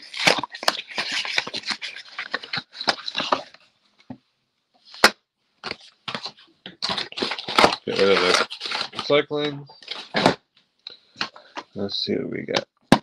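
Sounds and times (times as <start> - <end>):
plastic wrap crinkling: 0.0 - 3.7, 4.9 - 10.4.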